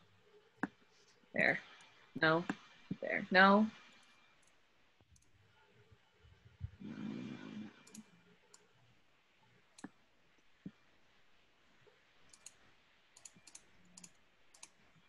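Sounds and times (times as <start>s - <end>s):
faint mouse clicks: 7.8s - 8.7s, 9.8s - 10.0s, 12.3s - 12.6s.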